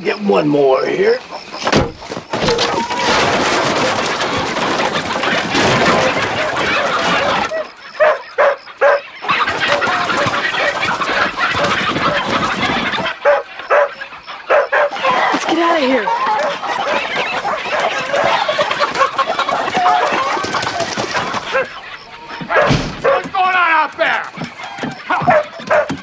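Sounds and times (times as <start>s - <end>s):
chickens squawking in alarm: 0.0s - 26.0s
dogs barking: 5.8s - 23.4s, 24.4s - 26.0s.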